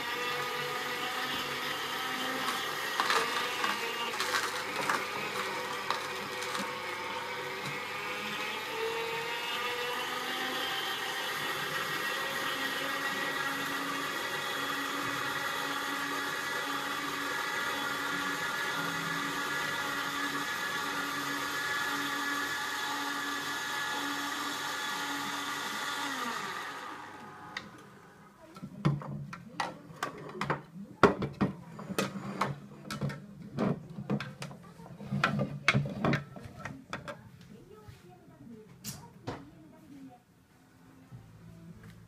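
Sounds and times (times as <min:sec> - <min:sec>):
juicer motor humming: 0:00.0 - 0:28.2.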